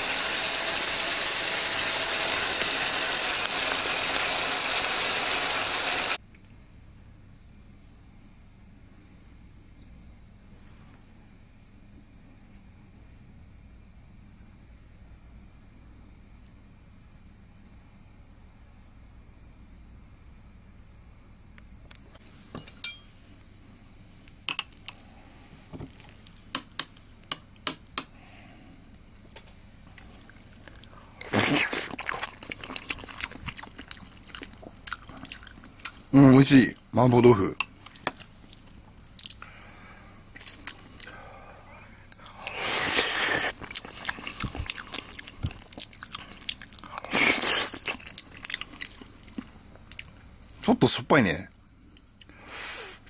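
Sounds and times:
spoon clinking against a bowl: 22.6 - 23.1
person chewing food: 25.8 - 26.5, 29.9 - 36.1, 37.7 - 39.5, 40.3 - 41.3, 42.1 - 50.2.

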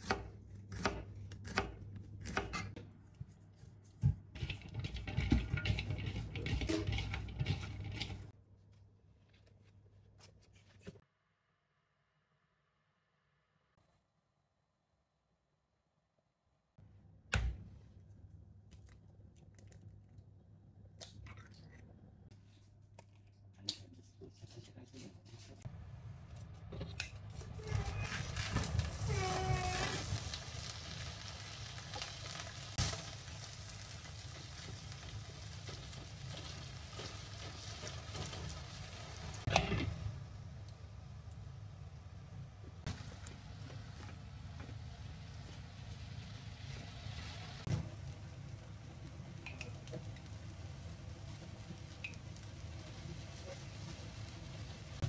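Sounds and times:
chopsticks stirring: 3.3 - 8.3
squid sizzling in frying pan: 28.2 - 39.5.

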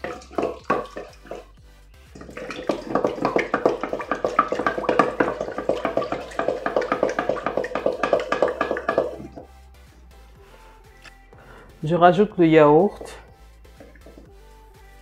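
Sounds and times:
liquid splashing in metal bowl: 0.0 - 9.5, 12.9 - 14.4.

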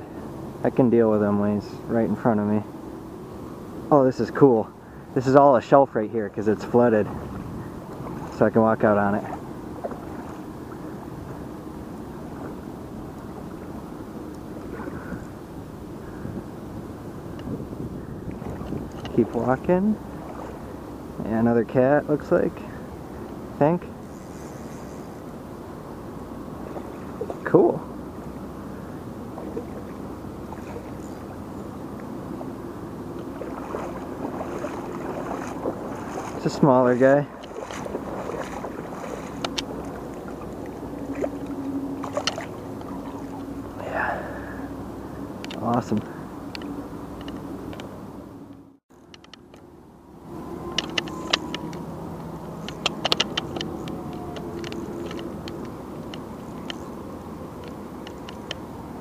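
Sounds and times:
steady low rumble: 0.0 - 48.8
river water flowing: 0.0 - 59.0
wind: 0.0 - 59.0
fish splashing at surface: 37.4 - 43.5.

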